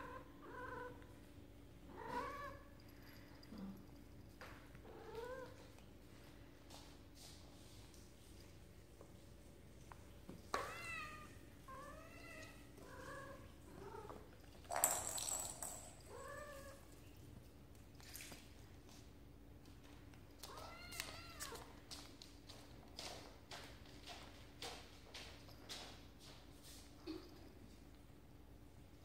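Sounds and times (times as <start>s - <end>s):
cat chirping and meowing: 10.6s - 14.0s.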